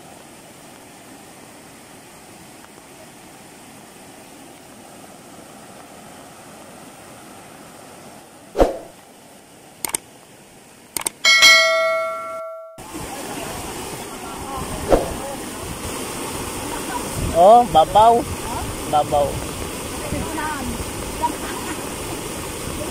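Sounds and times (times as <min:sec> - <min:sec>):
floodwater rushing: 0:00.0 - 0:22.9
sharp clicks: 0:09.8 - 0:10.0, 0:11.0 - 0:11.2
bell chime: 0:11.3 - 0:12.8.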